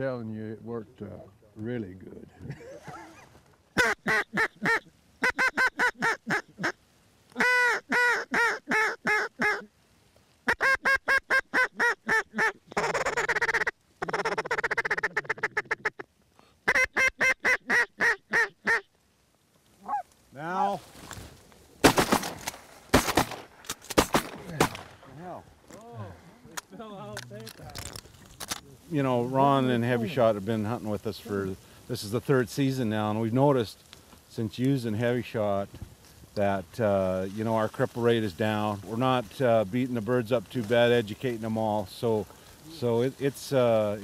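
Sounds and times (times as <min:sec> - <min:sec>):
quacking calls: 0:03.8 - 0:09.7, 0:10.4 - 0:18.9.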